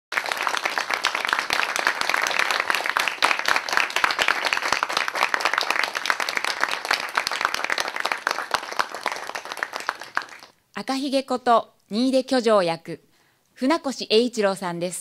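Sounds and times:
audience applauding: 0.1s - 10.6s.

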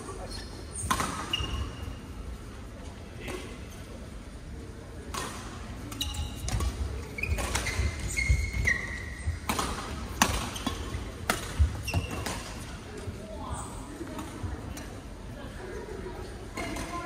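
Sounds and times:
shoes squeaking on court floor: 0.0s - 2.0s, 5.8s - 12.8s
rackets hitting shuttlecock: 0.8s - 1.7s, 5.1s - 12.7s.

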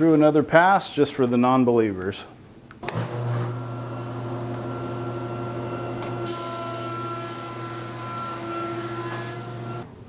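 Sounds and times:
planer humming and whining: 2.8s - 9.8s
board being planed hiss: 6.2s - 9.8s.

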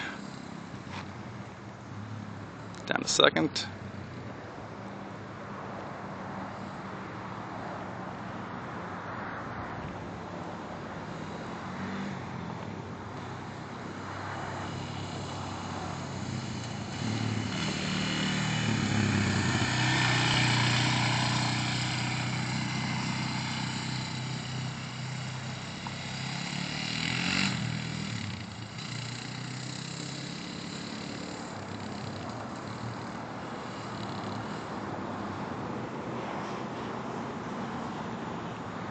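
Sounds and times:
quad engine running: 0.0s - 2.1s, 10.7s - 34.8s.

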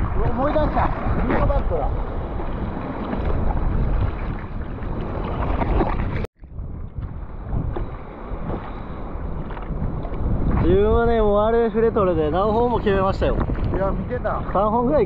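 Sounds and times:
sea water sloshing: 0.0s - 10.7s
wind rumbling on microphone: 0.0s - 15.0s.

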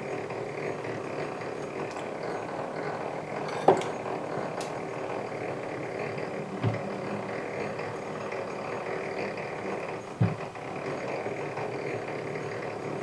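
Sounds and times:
conveyor chain and gears whirring: 0.0s - 13.0s
dull knock: 6.6s - 6.9s, 10.2s - 10.5s.

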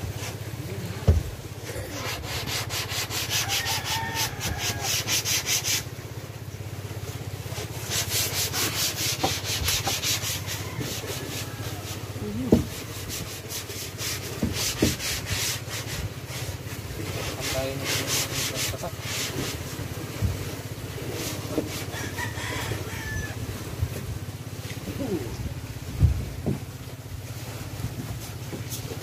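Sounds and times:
sandpaper scratching wood: 1.9s - 5.9s, 7.8s - 19.7s, 21.0s - 21.9s.

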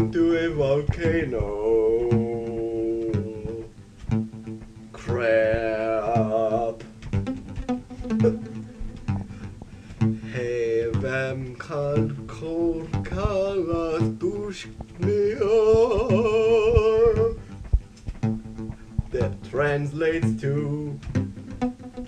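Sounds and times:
person singing long wavering notes: 0.0s - 3.8s, 4.9s - 17.6s
bass: 0.0s - 22.0s
plucked guitar: 0.0s - 22.0s.

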